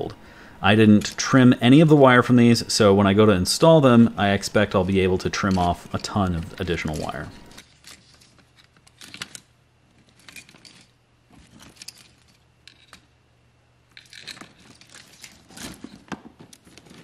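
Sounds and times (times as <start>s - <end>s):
wires and connectors rustling and clicking: 3.6s - 13.2s, 13.9s - 17.0s.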